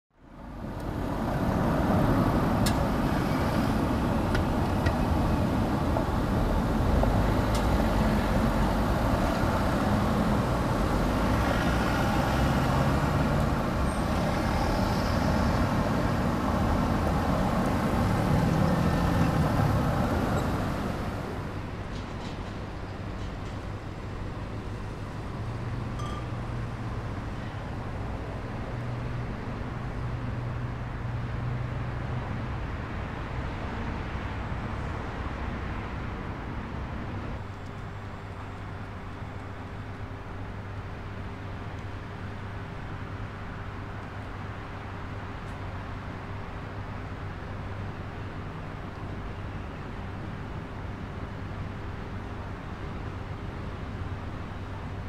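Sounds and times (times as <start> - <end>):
road traffic: 0.1 - 55.0.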